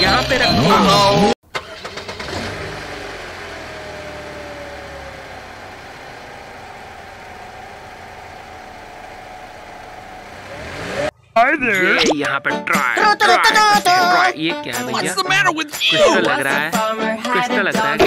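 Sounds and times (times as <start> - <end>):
car engine idling: 1.4 - 11.3.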